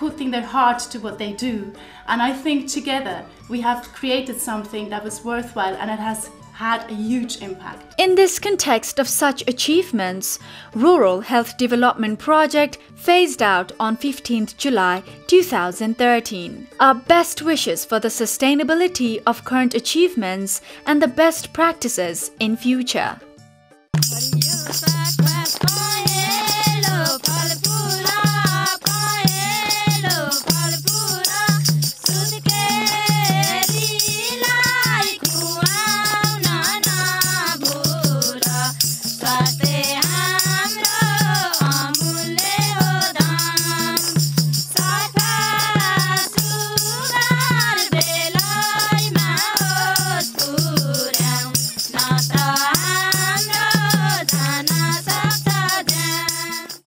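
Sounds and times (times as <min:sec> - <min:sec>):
fast rattle: 0:24.0 - 0:47.2.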